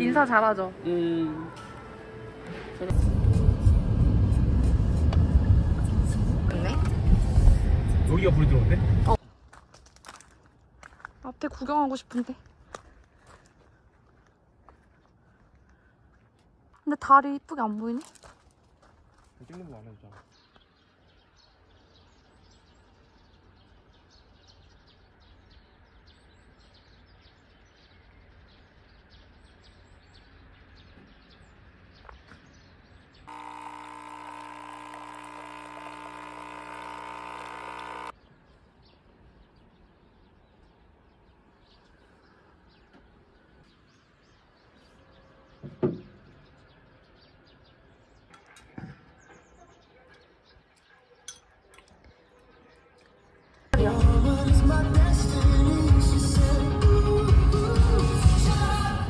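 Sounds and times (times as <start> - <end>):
small birds chirping: 19.1 - 53.8
coffee machine pump humming: 33.3 - 38.1.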